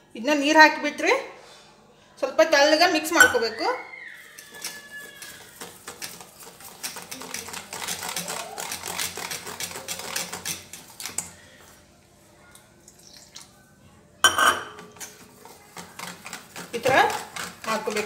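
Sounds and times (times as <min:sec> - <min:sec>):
whisk clicking against a bowl: 0:04.3 - 0:11.3, 0:14.8 - 0:18.0.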